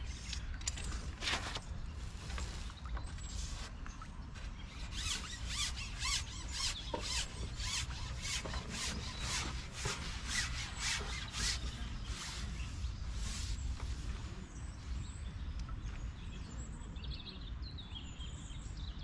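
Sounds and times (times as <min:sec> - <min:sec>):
fishing pole sections squeaking: 0:04.7 - 0:12.5.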